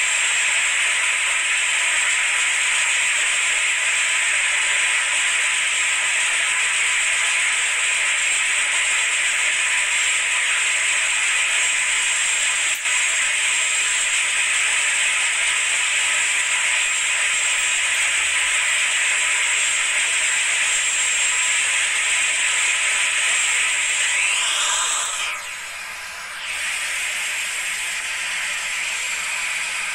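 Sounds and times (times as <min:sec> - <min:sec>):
engine-room machinery hiss: 0:00.0 - 0:29.9
faint steady whine: 0:00.0 - 0:29.9.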